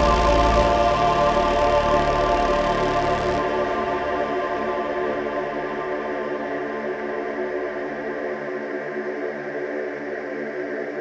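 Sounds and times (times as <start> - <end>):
ambient electronic music: 0.0 - 11.0.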